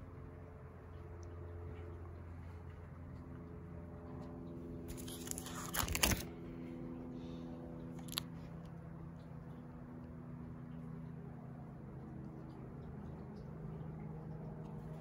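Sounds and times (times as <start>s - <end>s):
plastic sleeves crinkling: 4.9s - 6.3s.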